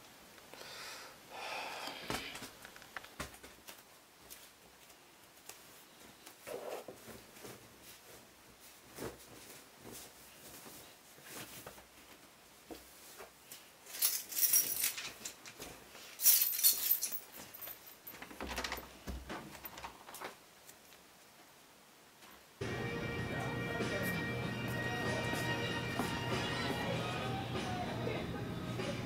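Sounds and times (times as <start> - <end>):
soft clicks and rustles: 1.8 - 22.5
metallic jangling: 13.9 - 15.5, 16.2 - 18.9.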